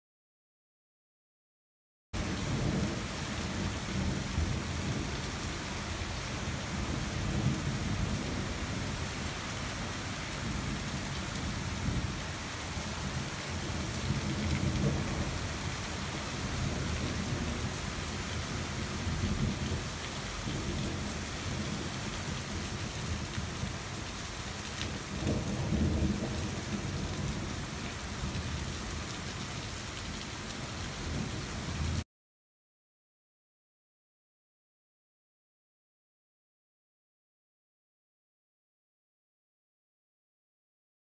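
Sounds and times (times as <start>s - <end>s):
thunder rumbling: 2.2s - 23.8s, 24.8s - 28.8s
steady rain: 2.2s - 32.0s.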